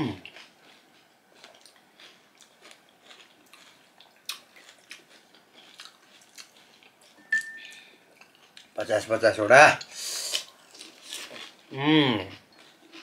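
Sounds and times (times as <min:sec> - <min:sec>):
chewing and crunching: 0:00.0 - 0:08.8, 0:09.8 - 0:13.0.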